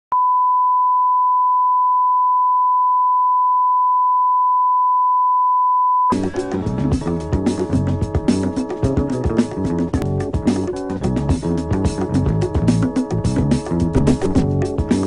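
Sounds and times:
steady test tone beep: 0:00.1 - 0:06.1
music with guitar: 0:06.1 - 0:15.0.

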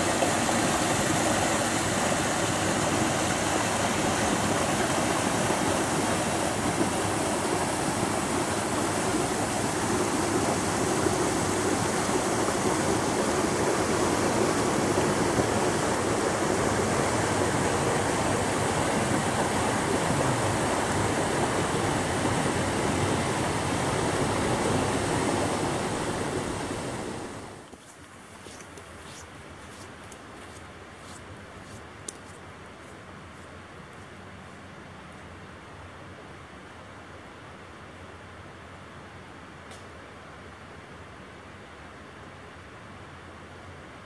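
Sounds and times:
creek water rushing over cascade: 0:00.0 - 0:27.8.

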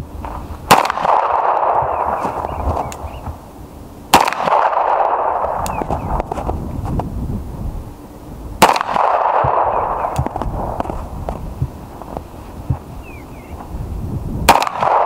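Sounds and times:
long rolling echo: 0:00.6 - 0:15.0
pistol shots: 0:00.7 - 0:03.2, 0:04.1 - 0:06.1, 0:08.6 - 0:11.0, 0:14.5 - 0:15.0.

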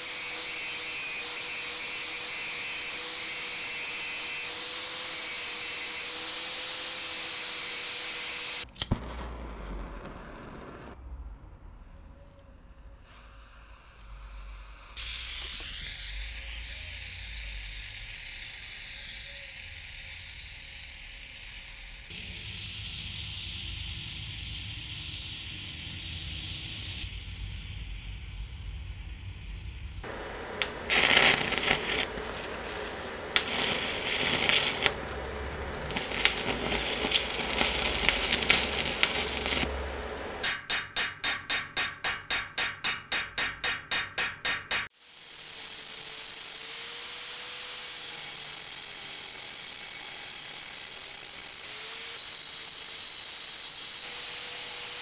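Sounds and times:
workshop tool working noise: 0:30.0 - 0:44.9
rapid regular stroking: 0:30.1 - 0:40.4.

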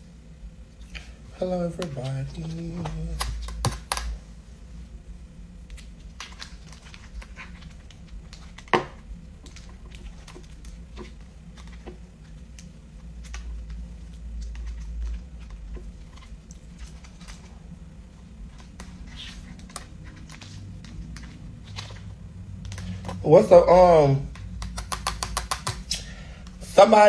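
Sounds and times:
low hum: 0:00.0 - 0:27.0
fingers tapping phone screen: 0:24.3 - 0:26.0.

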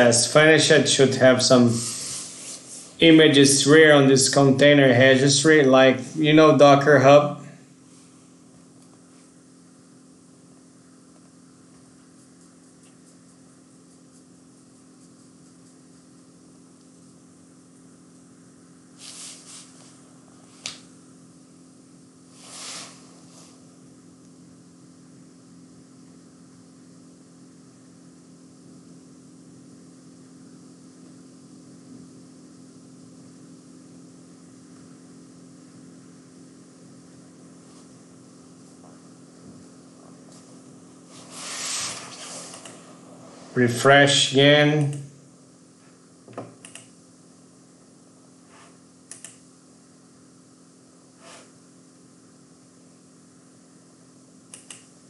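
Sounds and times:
faint low hum and hiss: 0:00.0 - 0:55.0
sharp click: 0:42.5 - 0:42.8, 0:46.4 - 0:47.0, 0:49.1 - 0:49.4, 0:54.5 - 0:54.9.

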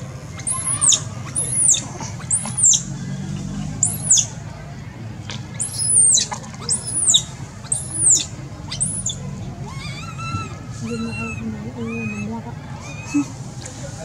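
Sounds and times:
baby monkey squealing: 0:00.3 - 0:03.2, 0:03.8 - 0:04.3, 0:05.6 - 0:13.4.

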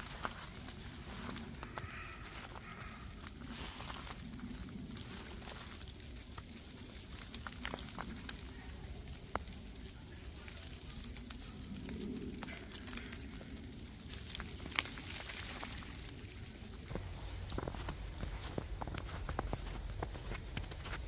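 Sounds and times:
faint crackles and ticks: 0:00.0 - 0:21.0
low rumble: 0:16.1 - 0:21.0.

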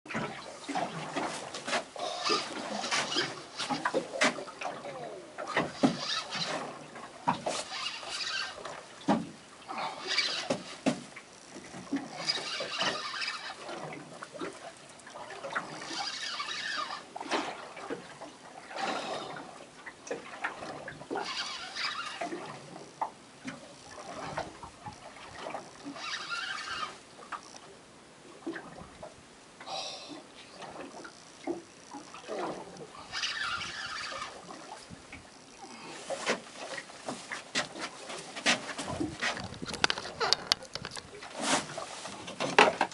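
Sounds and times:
water slopping against boat: 0:00.1 - 0:42.9
fishing reel winding clicks: 0:07.7 - 0:08.7, 0:11.4 - 0:13.6, 0:15.8 - 0:17.0, 0:21.2 - 0:22.2.

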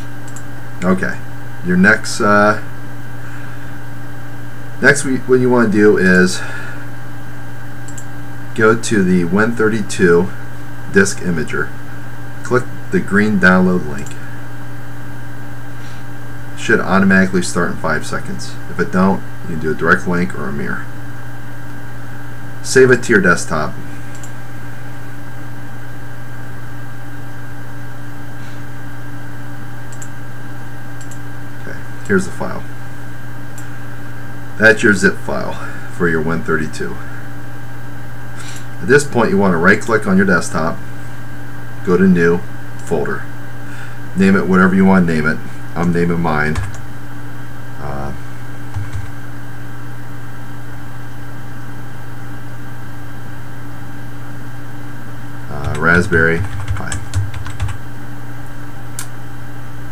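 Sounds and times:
low electrical hum: 0:00.0 - 0:59.9
keyboard keystrokes: 0:48.7 - 0:49.1, 0:55.7 - 0:57.8.

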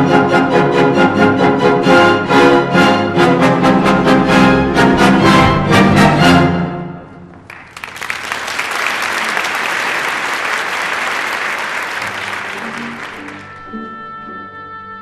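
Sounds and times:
orchestra playing: 0:00.0 - 0:07.4, 0:11.6 - 0:15.0
audience applauding: 0:07.4 - 0:13.7.

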